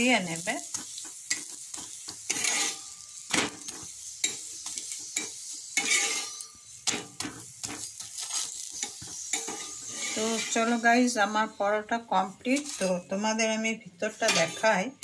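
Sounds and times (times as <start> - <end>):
flatbread sizzling in oil: 0.0 - 15.0
spatula scraping and tapping pan: 0.3 - 10.8, 12.5 - 13.1, 14.1 - 14.8.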